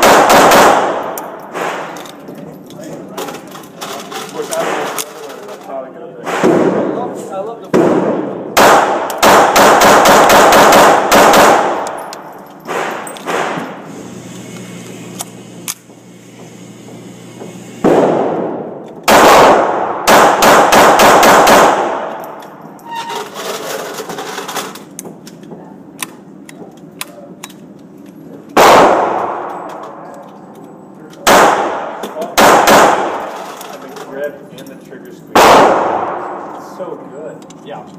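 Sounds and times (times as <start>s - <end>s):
pistol shots echoing: 0.0s - 2.0s, 7.7s - 13.8s, 17.8s - 22.4s, 28.5s - 29.9s, 31.2s - 33.4s, 35.3s - 36.5s.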